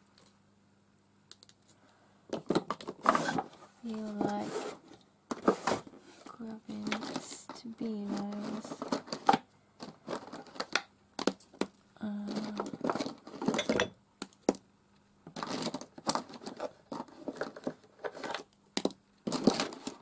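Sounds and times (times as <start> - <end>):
plastic pens clicking: 1.3 - 1.8
paper rustling: 2.9 - 10.8, 15.4 - 18.4.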